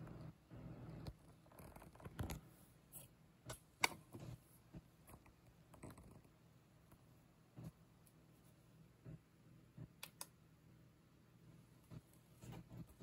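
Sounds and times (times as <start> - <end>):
soft rustling: 11.7 - 13.0.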